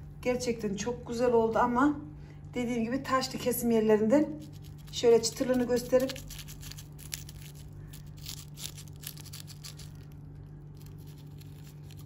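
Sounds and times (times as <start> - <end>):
steady low hum: 0.0 - 12.0
pastry crust crackling: 4.1 - 12.0.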